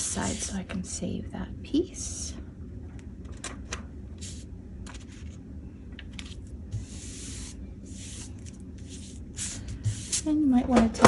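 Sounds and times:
paper rustling: 4.8s - 5.4s, 6.0s - 9.1s.

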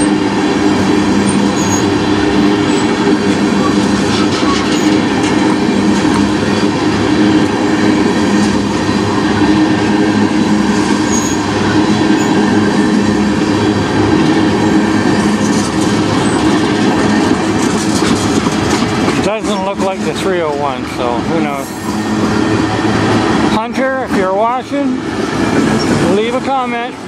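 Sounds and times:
train wheels clattering on rails: 0.0s - 27.0s.

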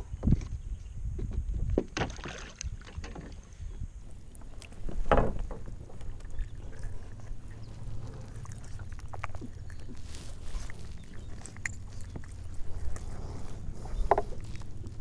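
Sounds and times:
wind rumble on microphone: 0.0s - 2.0s, 2.6s - 15.0s
splash: 2.0s - 3.0s
water lapping against kayak: 4.0s - 15.0s.

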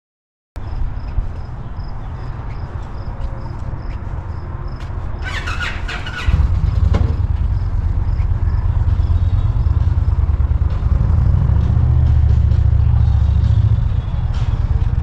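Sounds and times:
motorcycle engine rumbling: 5.2s - 15.0s.

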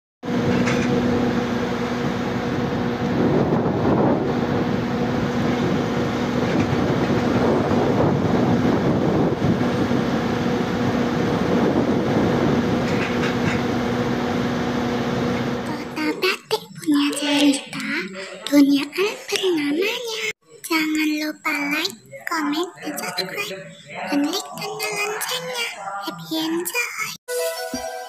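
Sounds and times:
hydraulic whine: 0.2s - 16.2s
excavator engine hum: 0.3s - 20.0s.

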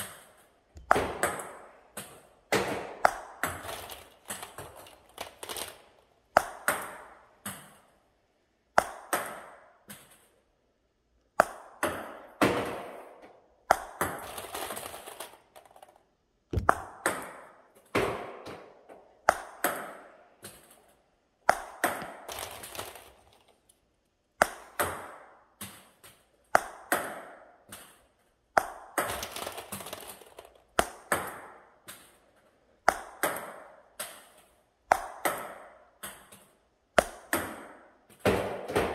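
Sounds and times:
table tennis ball hit with paddle: 0.8s - 3.7s, 6.4s - 7.8s, 8.7s - 10.2s, 11.4s - 14.2s, 16.5s - 20.8s, 21.5s - 22.3s, 24.4s - 28.0s, 28.6s - 29.2s, 30.8s - 32.1s, 32.8s - 38.9s
table tennis ball bouncing: 0.8s - 4.7s, 6.3s - 7.8s, 8.7s - 10.2s, 11.4s - 14.4s, 15.0s - 20.8s, 21.4s - 22.4s, 24.4s - 28.0s, 28.6s - 32.1s, 32.8s - 38.9s.

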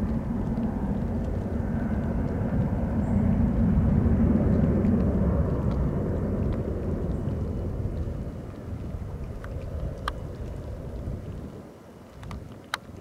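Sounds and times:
jet engines rumbling: 0.0s - 13.0s.

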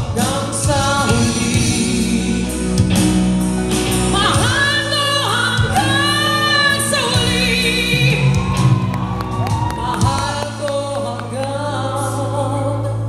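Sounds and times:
live band playing: 0.0s - 13.0s
woman singing into microphone: 4.1s - 8.9s, 9.5s - 13.0s.

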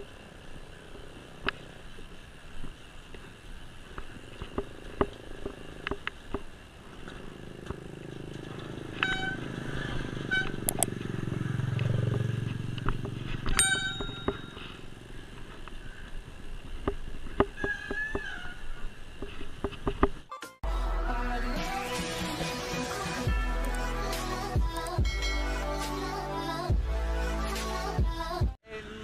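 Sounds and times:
motorcycle passing by: 0.0s - 2.4s, 3.8s - 16.8s.

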